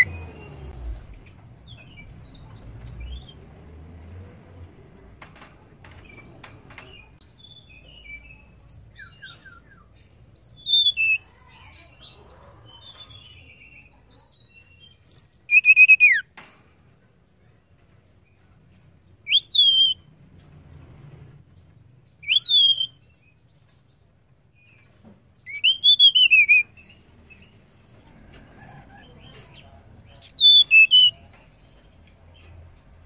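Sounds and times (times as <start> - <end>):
bird chirping and twittering: 0.0 - 4.2, 5.3 - 16.3, 17.4 - 20.2, 21.4 - 33.0
bird whistled phrases: 9.0 - 11.2, 15.0 - 16.2, 19.3 - 20.0, 22.2 - 23.0, 25.5 - 26.7, 30.0 - 31.2.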